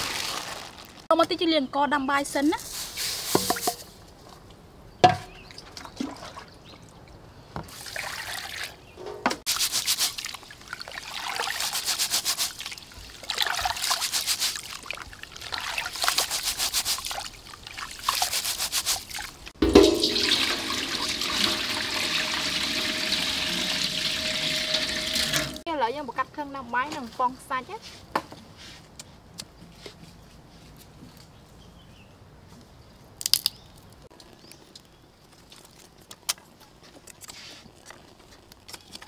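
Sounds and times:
water pouring into pot: 0:09.5 - 0:16.4, 0:19.7 - 0:25.6
hands rubbing wet rice: 0:09.5 - 0:19.4.

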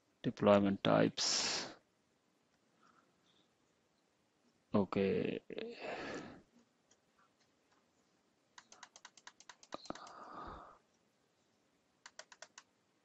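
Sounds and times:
computer clicking: 0:08.6 - 0:10.4, 0:12.0 - 0:12.7.

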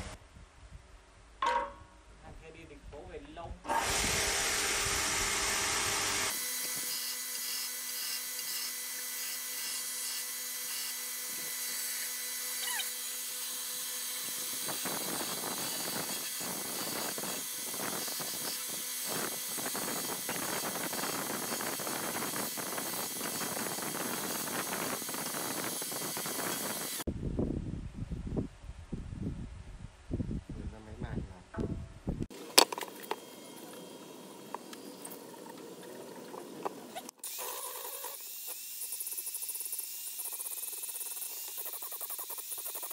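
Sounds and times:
belt sander motor hum: 0:03.7 - 0:27.0
wood scraping on sanding belt: 0:36.4 - 0:42.9.

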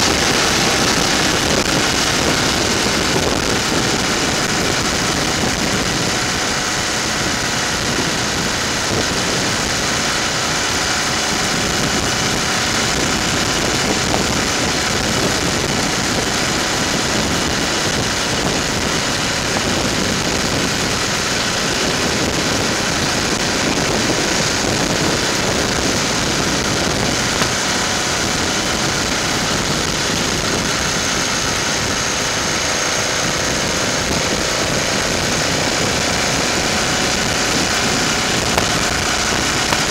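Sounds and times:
motorcycle engine running: 0:00.0 - 0:39.9
wind noise on microphone: 0:00.0 - 0:39.9.

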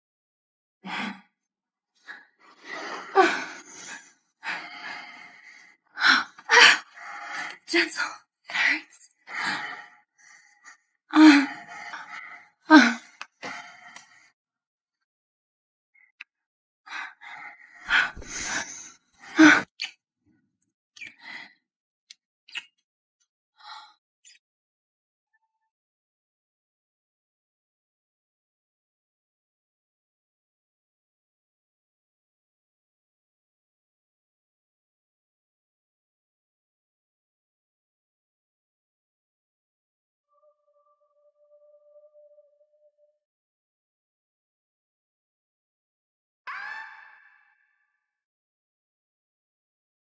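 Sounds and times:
woman sighing and gasping: 0:02.5 - 0:08.0, 0:11.1 - 0:13.8, 0:17.0 - 0:19.8.

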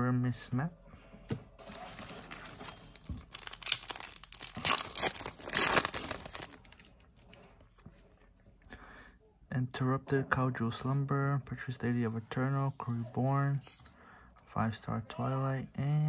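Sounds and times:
foil wrapper crinkling: 0:01.7 - 0:07.0.

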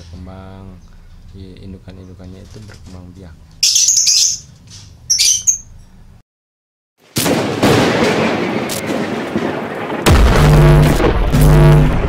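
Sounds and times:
canary chirps: 0:03.6 - 0:05.8
explosion-like whoosh: 0:07.2 - 0:12.0.

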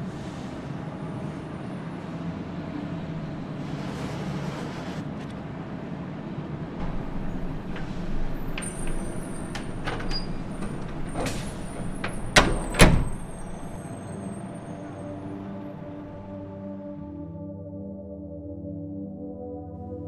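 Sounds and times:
engine running: 0:02.0 - 0:14.2
clicks and knocks: 0:06.8 - 0:13.8
door slams: 0:06.8 - 0:13.8.

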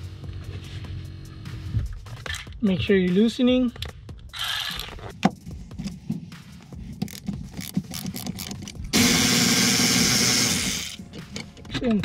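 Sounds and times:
cordless electric ratchet running: 0:04.3 - 0:04.9, 0:07.1 - 0:11.0.

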